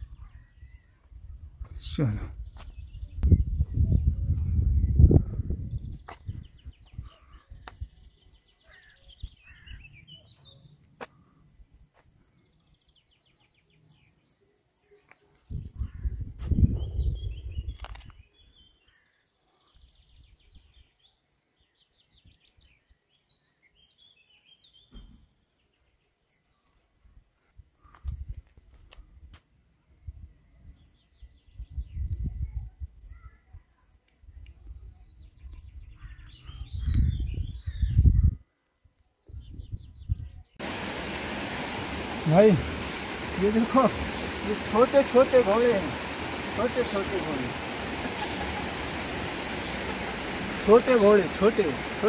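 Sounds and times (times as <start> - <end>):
insects trilling: 40.5 - 52.0.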